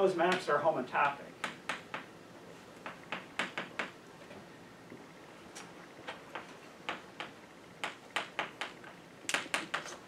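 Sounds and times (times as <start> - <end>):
chalk tapping on blackboard: 0.3 - 2.1, 2.8 - 4.0.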